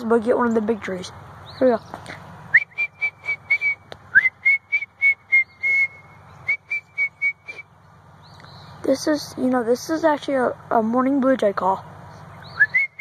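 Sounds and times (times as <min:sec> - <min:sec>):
person whistling bird call: 0:02.5 - 0:07.7, 0:12.5 - 0:13.0.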